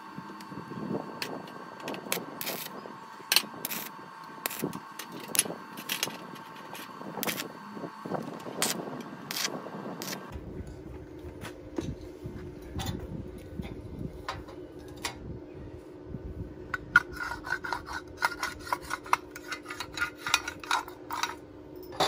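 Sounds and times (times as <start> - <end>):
welding arc crackling: 2.0 - 7.6, 8.2 - 10.3.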